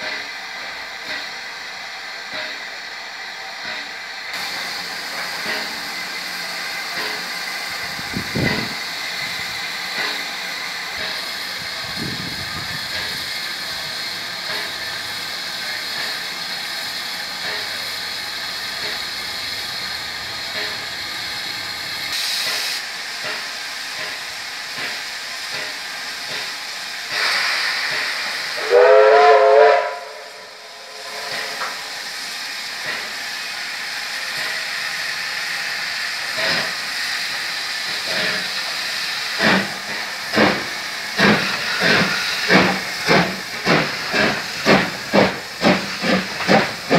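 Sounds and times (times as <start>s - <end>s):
steam hissing: 0.0s - 46.9s
steam locomotive whistle: 27.2s - 31.7s
locomotive exhaust beats: 36.0s - 46.9s.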